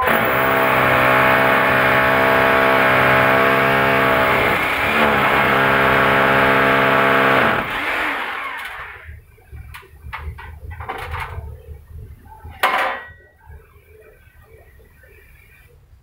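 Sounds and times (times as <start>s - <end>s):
hammer drill boring into masonry: 0.0s - 9.1s.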